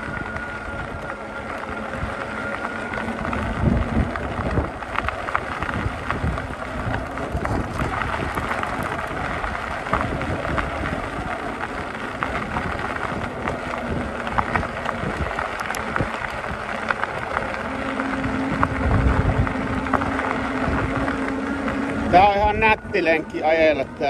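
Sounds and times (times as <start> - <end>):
steady hum: 0.0 - 24.0
tyres crunching on gravel: 0.0 - 24.0
wind rumbling on microphone: 0.0 - 24.0.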